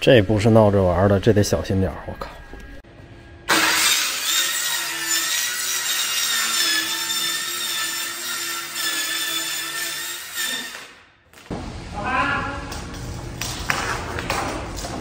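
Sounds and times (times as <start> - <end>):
electric saw cutting panel: 3.5 - 11.0.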